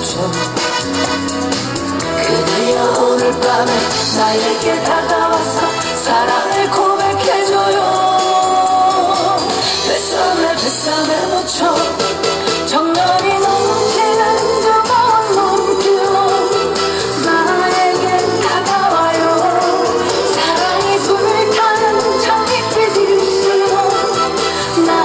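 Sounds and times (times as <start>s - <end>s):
backing track with steady beat: 0.0s - 25.0s
woman singing into microphone: 2.0s - 25.0s.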